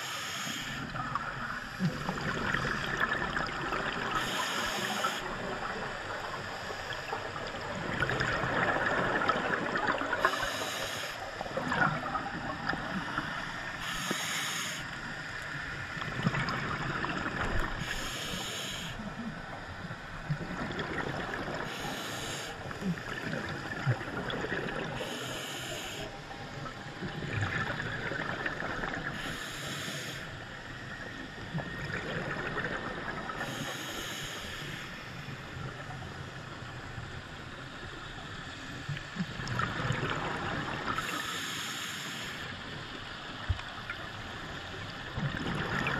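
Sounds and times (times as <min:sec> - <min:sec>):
regulator inhale hiss: 0:00.0 - 0:02.0, 0:04.2 - 0:05.3, 0:10.2 - 0:11.5, 0:13.1 - 0:15.5, 0:17.7 - 0:19.2, 0:21.6 - 0:23.0, 0:25.0 - 0:26.6, 0:29.1 - 0:30.7, 0:33.4 - 0:35.7, 0:41.0 - 0:43.2
gurgling exhaled bubbles: 0:00.8 - 0:10.7, 0:11.4 - 0:13.4, 0:16.0 - 0:18.2, 0:20.2 - 0:21.9, 0:22.6 - 0:25.3, 0:26.6 - 0:29.4, 0:31.2 - 0:33.7, 0:38.9 - 0:41.3, 0:43.5 - 0:45.9.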